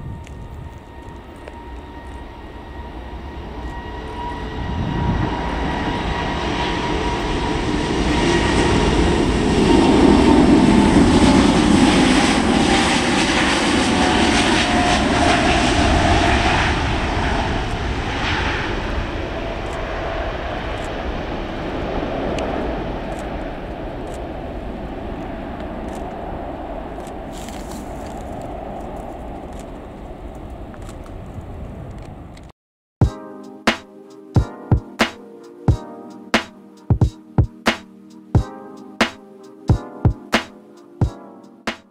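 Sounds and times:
jet airliner roaring at takeoff: 0.0 - 32.5
jet engine whine: 0.0 - 41.9.

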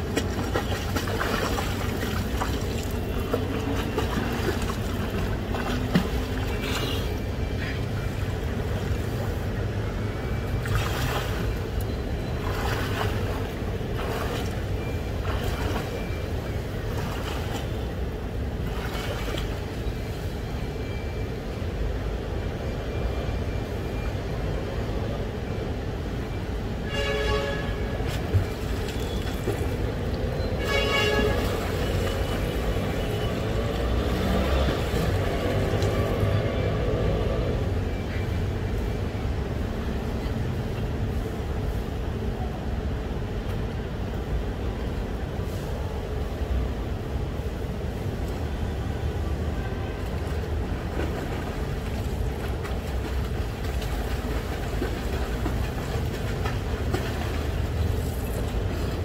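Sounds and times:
water lapping and splashing: 0.0 - 20.3, 27.9 - 37.6, 47.9 - 59.0.

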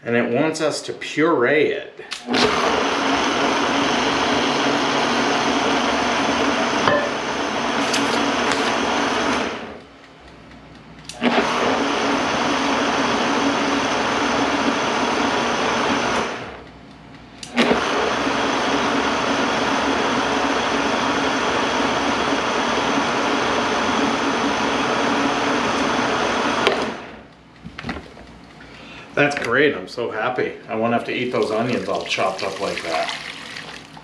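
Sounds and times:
blender motor whirring: 2.2 - 9.8, 11.1 - 16.6, 17.4 - 27.2.

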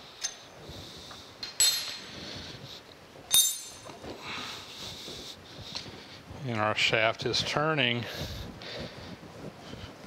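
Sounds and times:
metal clinks: 1.4 - 2.2, 3.3 - 4.0.

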